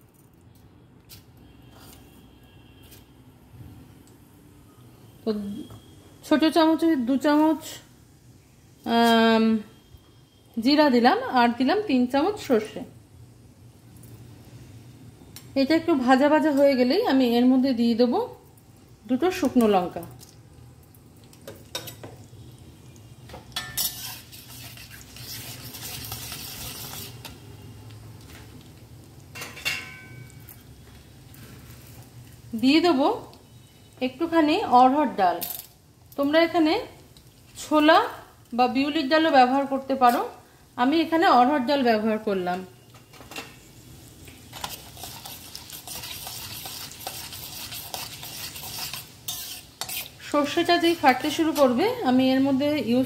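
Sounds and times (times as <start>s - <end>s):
hot oil sizzling: 5.2s - 53.0s
steel spatula scraping a pan: 23.6s - 27.4s, 44.5s - 51.8s.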